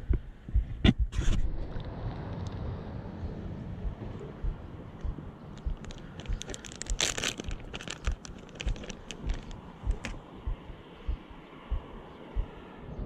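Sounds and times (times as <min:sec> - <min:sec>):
soft low thumps: 0:00.0 - 0:01.6, 0:03.7 - 0:12.6
plastic packet crinkling: 0:05.6 - 0:10.2.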